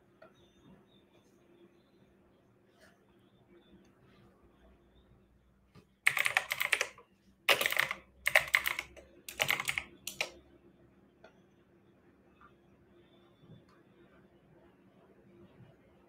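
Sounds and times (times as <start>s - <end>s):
typing on computer keyboard: 6.0s - 10.4s.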